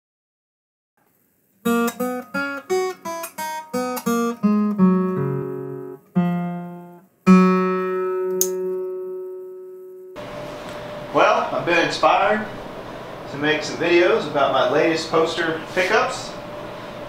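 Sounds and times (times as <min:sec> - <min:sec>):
acoustic guitar plucked notes: 0:01.6 - 0:10.3.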